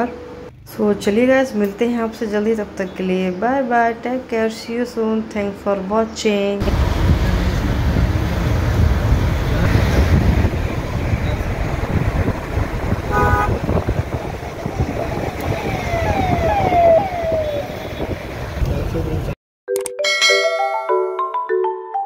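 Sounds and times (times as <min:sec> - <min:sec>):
road traffic: 0:00.0 - 0:19.4
car horn toot: 0:13.0 - 0:13.8
high falling tone: 0:13.7 - 0:18.4.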